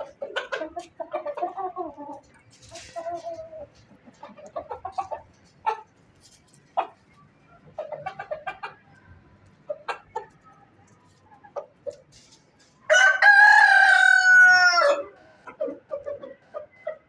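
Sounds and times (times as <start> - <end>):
rooster clucking: 0.0 - 17.0
rooster crowing: 12.9 - 15.3.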